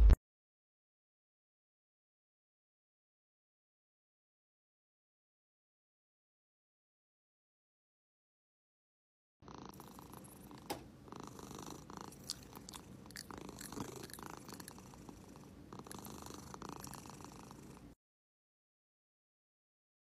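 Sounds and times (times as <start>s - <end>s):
cat purring: 9.5s - 18.0s.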